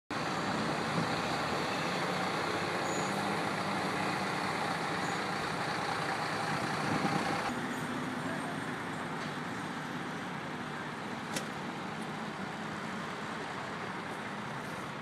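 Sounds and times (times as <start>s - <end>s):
truck engine running: 0.1s - 8.9s.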